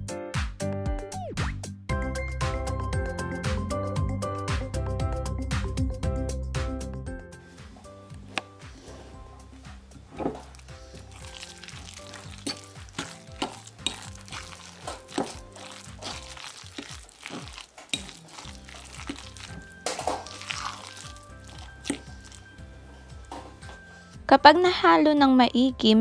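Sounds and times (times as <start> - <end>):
background music: 0.0 - 26.0
fork clinking against glass bowl: 12.2 - 22.5.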